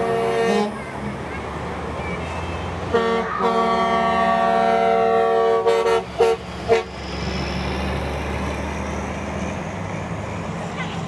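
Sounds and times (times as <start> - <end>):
truck air horn: 0.0 - 0.8, 2.9 - 7.0
truck engine rumbling: 0.0 - 11.0.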